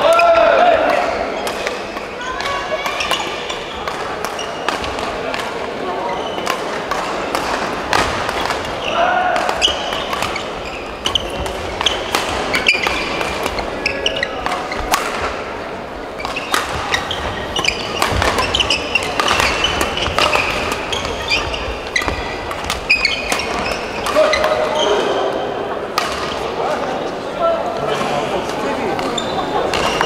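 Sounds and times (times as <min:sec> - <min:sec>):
voices chattering: 0:00.0 - 0:30.0
rackets striking shuttlecock: 0:09.4 - 0:13.6, 0:14.4 - 0:15.4, 0:16.2 - 0:24.8.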